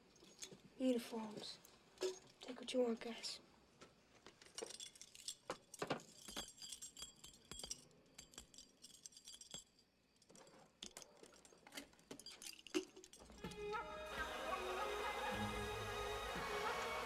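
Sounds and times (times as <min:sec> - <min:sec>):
metal dog tags clinking: 0:04.2 - 0:13.6.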